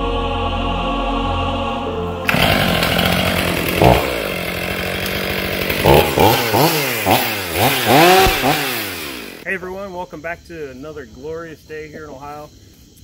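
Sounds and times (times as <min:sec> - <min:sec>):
chainsaw running and revving: 0:02.2 - 0:09.4.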